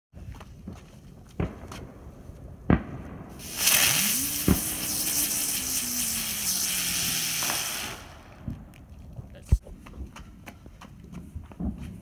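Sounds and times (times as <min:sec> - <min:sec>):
sharp crack: 0:02.7 - 0:08.9
firework flare hissing: 0:03.3 - 0:08.7.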